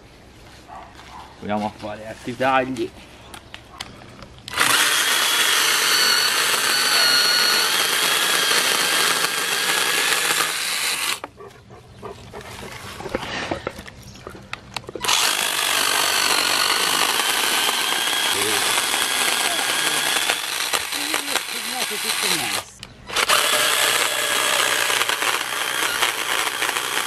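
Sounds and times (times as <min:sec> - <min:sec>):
electric chainsaw cutting branch: 0:04.5 - 0:11.3, 0:15.0 - 0:27.0.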